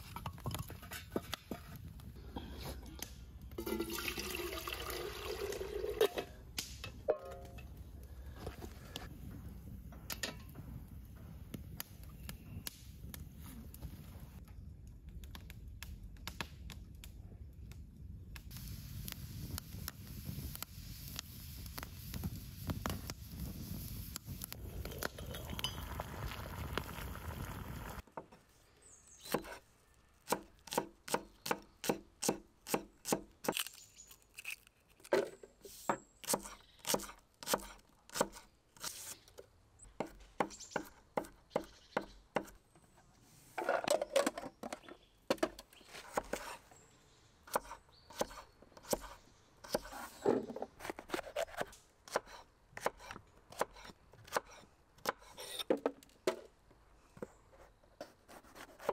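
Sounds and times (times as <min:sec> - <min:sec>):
wood campfire crackling: 0:00.0 - 0:28.0.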